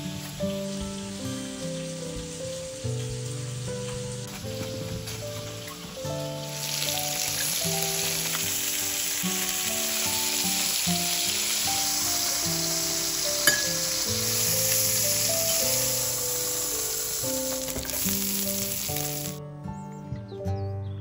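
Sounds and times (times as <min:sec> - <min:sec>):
chicken sizzling in a frying pan: 0:00.0 - 0:19.4
soft background music: 0:00.0 - 0:21.0.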